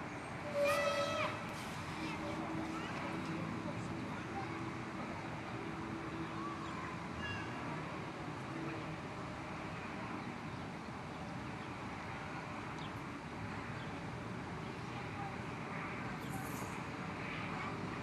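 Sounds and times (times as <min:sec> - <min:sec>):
outdoor background noise: 0:00.0 - 0:18.0
faint short high calls: 0:00.4 - 0:01.5.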